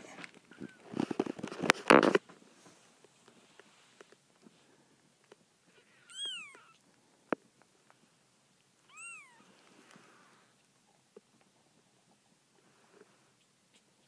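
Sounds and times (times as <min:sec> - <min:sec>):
kitten mewing: 0:05.7 - 0:06.8.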